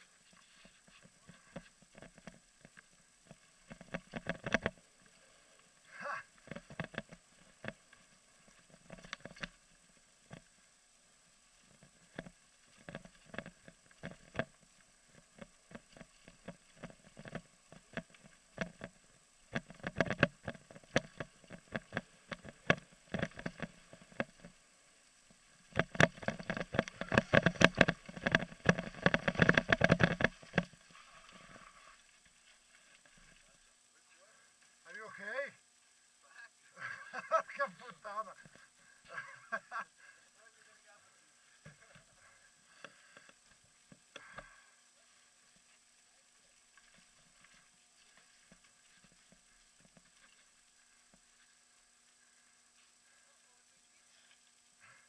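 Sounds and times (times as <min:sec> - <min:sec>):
mountain bike rattling: 0:25.5 - 0:30.8.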